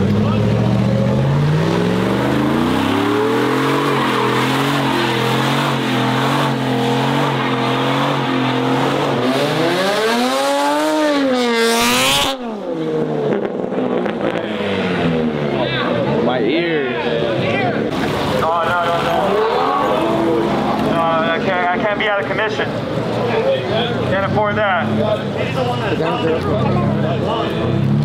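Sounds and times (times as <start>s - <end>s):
car engine revving hard: 0.0s - 16.4s.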